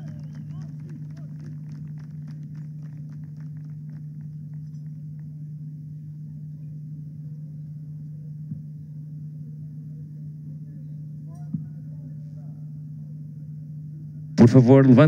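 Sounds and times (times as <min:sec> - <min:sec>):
hand clapping: 0:00.0 - 0:05.3
low hum: 0:00.0 - 0:15.0.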